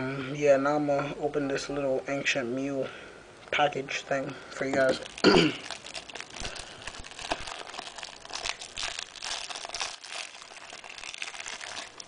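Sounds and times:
plastic wrapper crinkling: 0:04.6 - 0:12.0.

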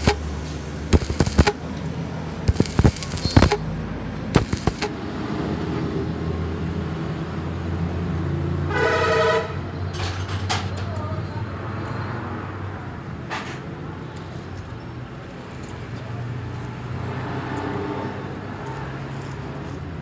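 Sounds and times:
steady low hum: 0:00.0 - 0:01.6, 0:02.5 - 0:03.6, 0:04.4 - 0:05.0
welding arc crackles: 0:00.0 - 0:05.0
vehicle horn toot: 0:08.7 - 0:09.7.

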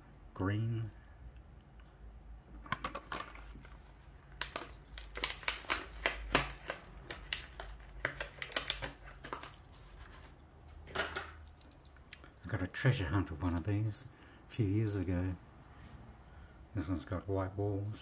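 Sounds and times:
plastic blister pack cracking open: 0:04.4 - 0:09.6.

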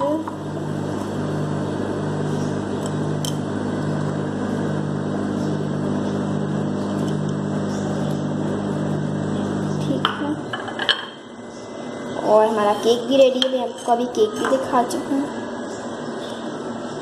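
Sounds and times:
microwave oven humming: 0:00.0 - 0:17.0.

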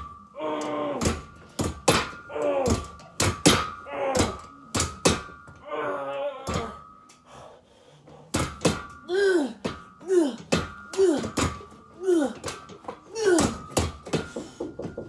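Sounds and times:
person grunting with effort: 0:00.3 - 0:01.3, 0:02.2 - 0:03.0, 0:03.8 - 0:04.5, 0:09.1 - 0:12.5, 0:13.1 - 0:13.7.

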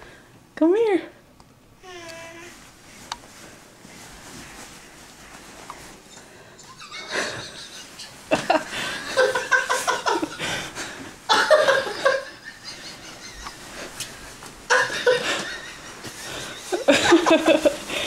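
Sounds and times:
people laughing: 0:06.6 - 0:14.1, 0:14.7 - 0:18.0.

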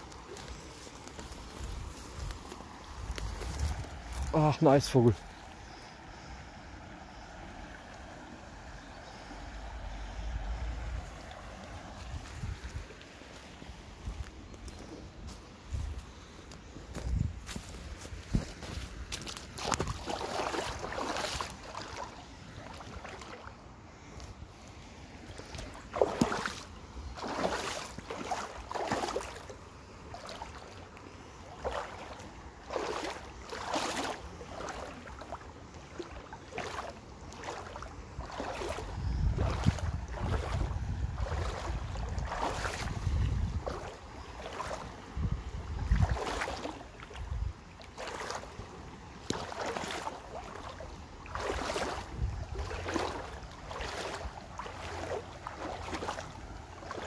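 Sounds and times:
footsteps walking: 0:00.0 - 0:04.4, 0:12.0 - 0:21.9, 0:39.4 - 0:42.8
wind buffeting microphone: 0:01.4 - 0:04.4, 0:09.0 - 0:13.0, 0:13.6 - 0:21.8, 0:37.7 - 0:48.1, 0:49.4 - 0:57.0.

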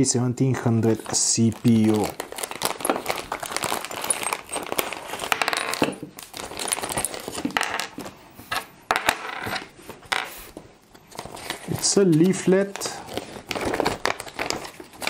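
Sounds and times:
plastic bag crinkling: 0:00.6 - 0:08.1, 0:10.9 - 0:15.0.

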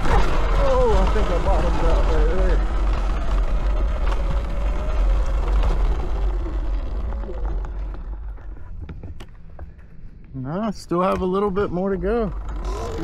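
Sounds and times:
electric motor whine: 0:00.0 - 0:08.4, 0:12.3 - 0:13.0.

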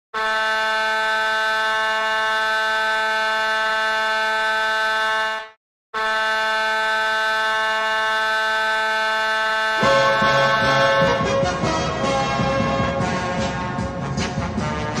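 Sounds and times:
goal horn blasts: 0:00.1 - 0:15.0.

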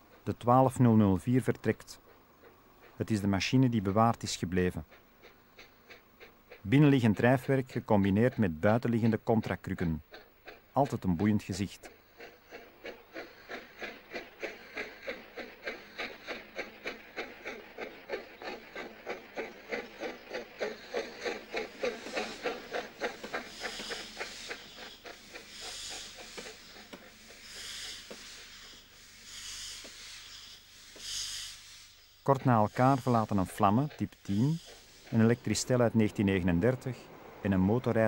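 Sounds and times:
steam locomotive chuffing: 0:00.0 - 0:38.0
hissing puffs of steam: 0:11.8 - 0:37.5.

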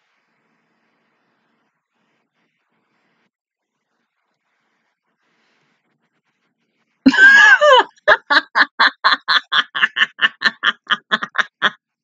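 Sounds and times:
woman laughing: 0:07.1 - 0:11.8.

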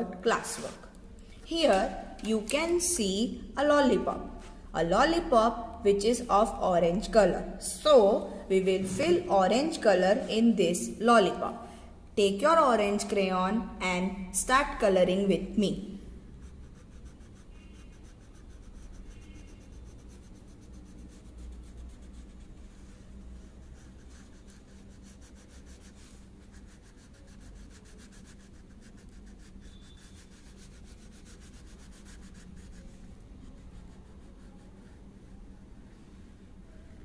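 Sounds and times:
low steady hum: 0:00.0 - 0:37.0
crayon rubbing on paper: 0:16.2 - 0:35.6.

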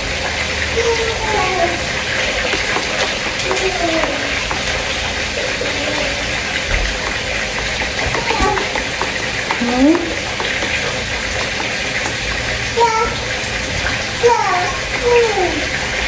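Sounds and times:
spoon stirring in plastic pitcher: 0:01.6 - 0:14.0.

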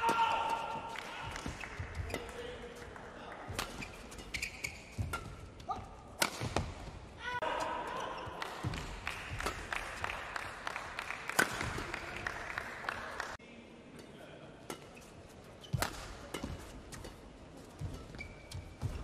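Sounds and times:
racket hitting shuttlecock: 0:00.0 - 0:07.0, 0:08.6 - 0:10.2, 0:11.2 - 0:12.2, 0:14.7 - 0:19.0.

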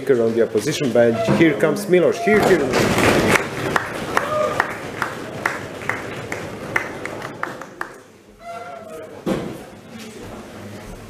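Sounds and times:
audience applauding: 0:02.6 - 0:08.2.

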